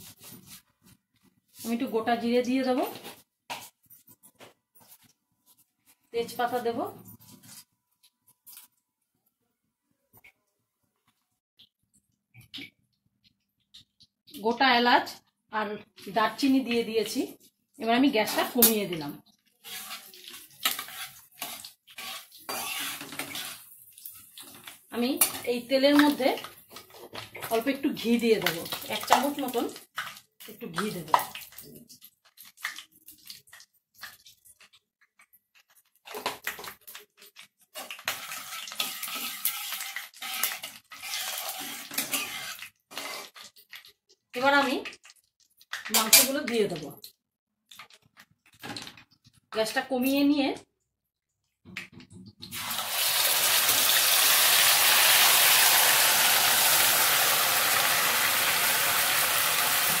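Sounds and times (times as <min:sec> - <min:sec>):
oil sizzling: 0:17.9 - 0:46.8, 0:52.5 - 1:00.0
steel spatula scraping: 0:19.4 - 0:24.6, 0:37.6 - 0:43.5
meat sizzling loudly in hot oil: 0:52.6 - 1:00.0.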